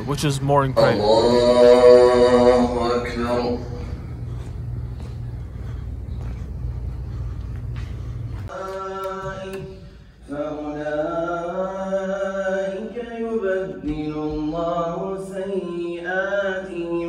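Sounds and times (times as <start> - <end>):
man chanting: 0.0 - 3.9.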